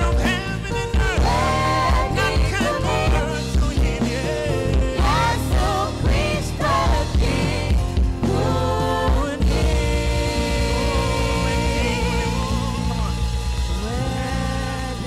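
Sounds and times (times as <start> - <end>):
man singing: 0.0 - 6.5, 8.2 - 15.0
instrumental backing with bass: 0.0 - 15.0
woman singing: 1.1 - 15.0.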